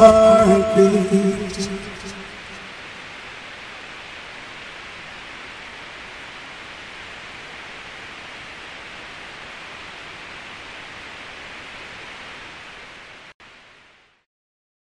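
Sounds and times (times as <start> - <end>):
steady hiss: 0.0 - 14.2.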